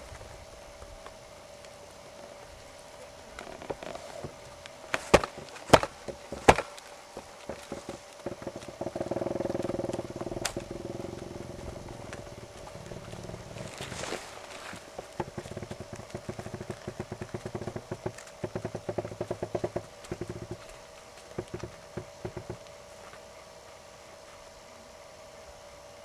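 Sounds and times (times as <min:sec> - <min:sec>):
steady engine hum: 0:00.0 - 0:26.0
pony hoofbeats: 0:00.8 - 0:24.5
loud sharp knocks: 0:04.9 - 0:13.7, 0:21.4 - 0:22.6.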